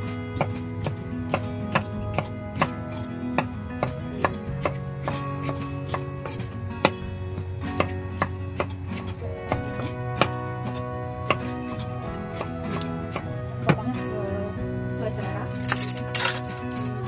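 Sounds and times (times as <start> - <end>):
soft background music: 0.0 - 17.0
knife chopping on cutting board: 0.4 - 13.9.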